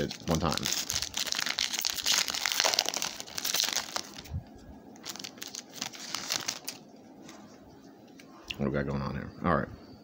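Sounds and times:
cards rustling and clicking: 0:00.0 - 0:04.3
foil wrappers crinkling and tearing: 0:00.0 - 0:04.3, 0:05.0 - 0:06.8.

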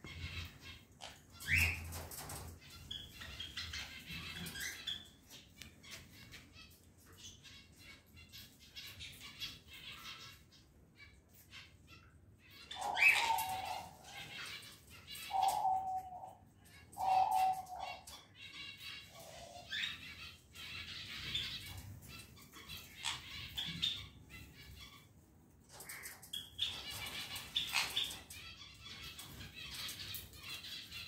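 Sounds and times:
parrot squawking: 0:12.6 - 0:25.1.

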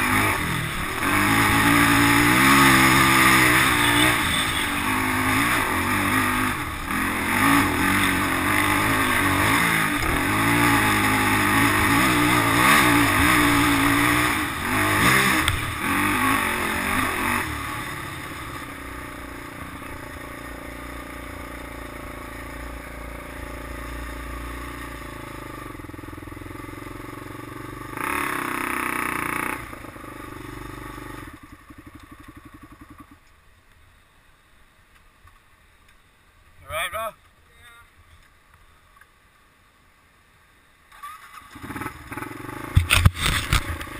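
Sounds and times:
quad engine revving: 0:00.0 - 0:31.4, 0:41.0 - 0:43.9.

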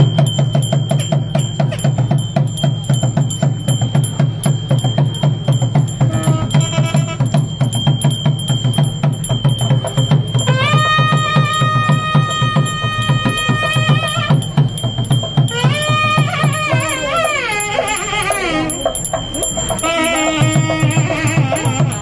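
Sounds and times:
drum beaten in fast rhythm: 0:00.0 - 0:22.0
metal bells ringing: 0:00.0 - 0:22.0.

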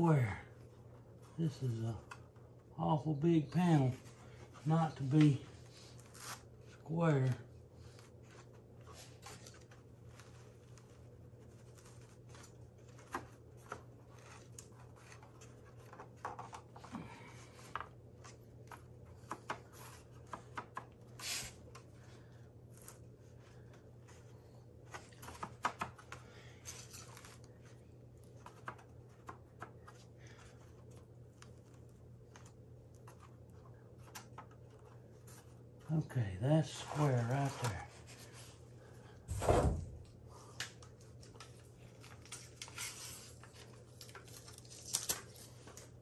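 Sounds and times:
steady low hum: 0:00.0 - 0:44.6.

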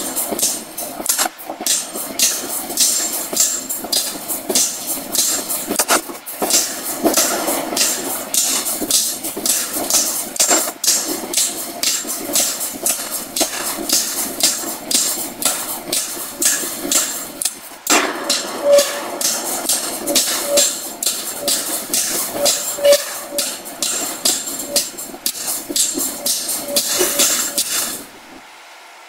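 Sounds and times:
forging hammer striking hot steel: 0:00.0 - 0:28.4.

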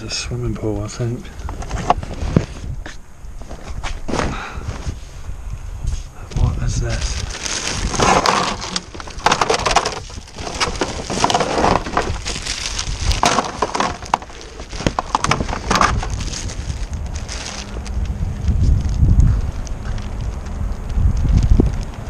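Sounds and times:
plastic wrapping crinkling: 0:06.7 - 0:22.0.

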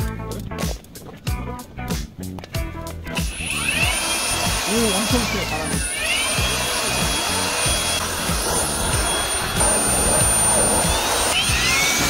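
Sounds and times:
blower motor whine: 0:03.1 - 0:12.0.

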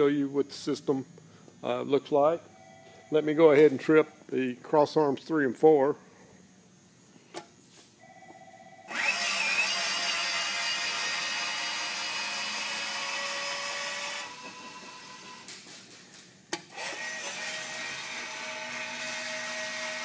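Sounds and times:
barrier arm motor whining: 0:08.9 - 0:15.5, 0:16.7 - 0:20.0.

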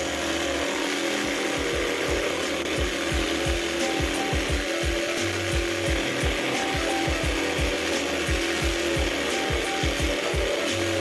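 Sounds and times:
table saw cutting wood: 0:00.0 - 0:11.0.

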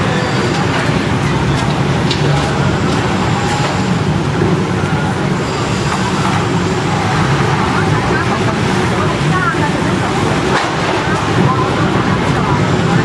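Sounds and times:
city traffic roar: 0:00.0 - 0:13.0.

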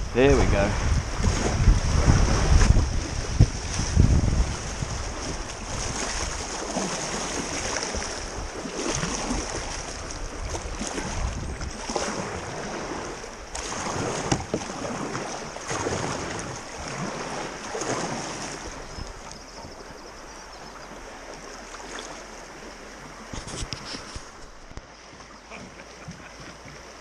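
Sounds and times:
river current rushing: 0:00.0 - 0:27.0
paddle splashing in water: 0:00.3 - 0:27.0.

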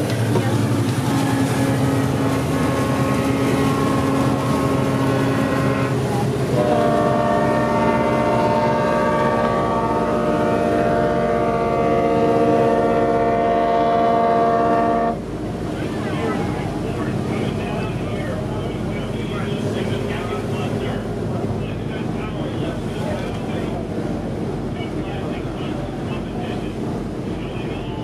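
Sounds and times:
tugboat horn blasts: 0:01.0 - 0:15.2.

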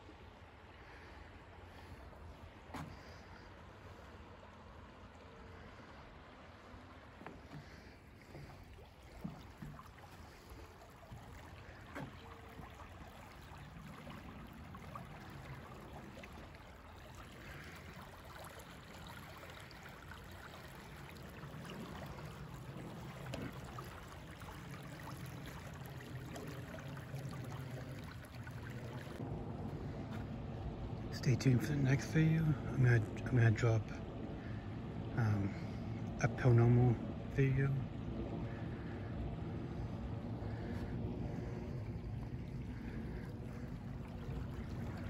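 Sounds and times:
creek rushing: 0:00.0 - 0:36.8, 0:40.3 - 0:45.0
low rumble: 0:21.6 - 0:45.0.

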